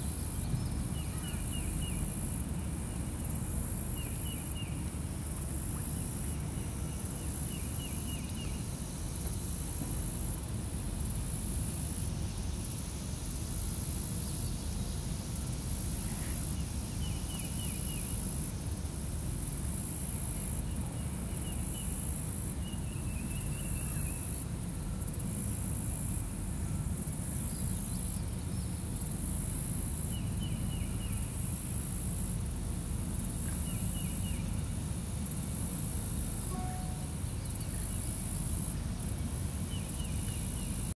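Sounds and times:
insect chorus: 0.0s - 40.9s.

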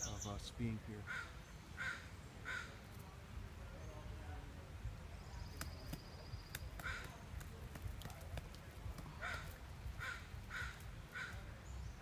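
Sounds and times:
bird harsh calls: 0.0s - 3.0s, 5.3s - 7.4s, 9.0s - 12.0s
woodpecker tapping on wood: 5.5s - 11.5s.

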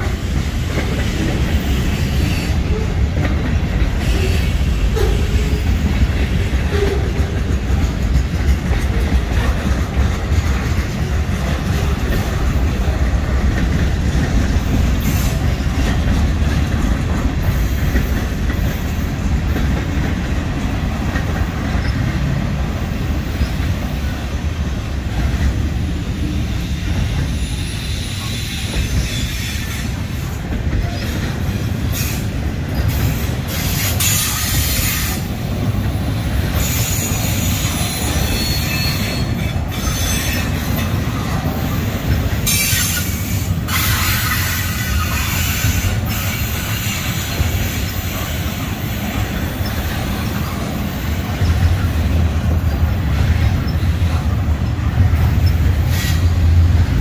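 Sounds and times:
train wheels rumbling on rail: 0.0s - 57.0s
high-pitched wheel squeal: 36.8s - 40.5s.

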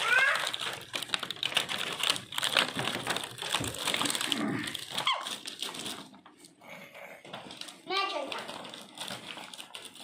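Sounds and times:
plastic toy pieces clicking: 0.0s - 6.1s.

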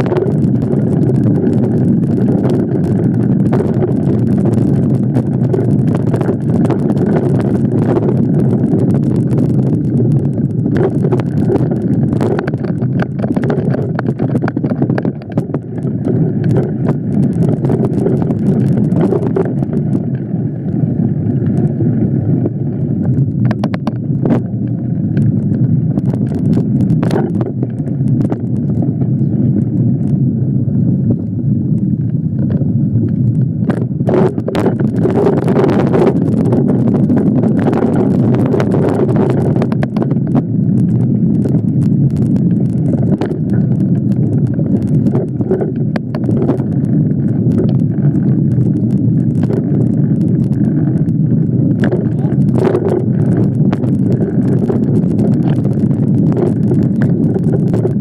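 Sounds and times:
bike clicks and rattles: 0.0s - 58.0s
wind buffeting microphone: 0.0s - 58.0s.

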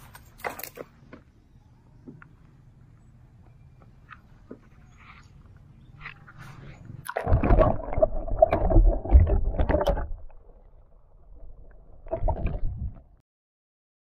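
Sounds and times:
water splashing and bubbling: 6.2s - 13.2s.

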